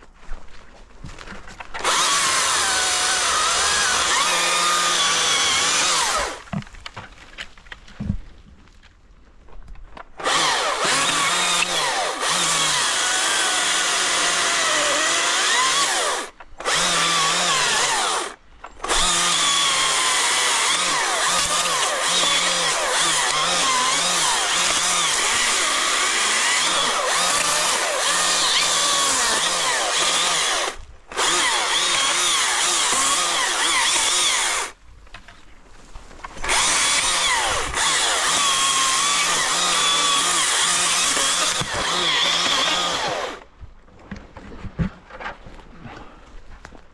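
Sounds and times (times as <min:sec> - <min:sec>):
battery chainsaw cutting branches: 0:01.6 - 0:06.8, 0:10.1 - 0:34.8, 0:36.3 - 0:43.5.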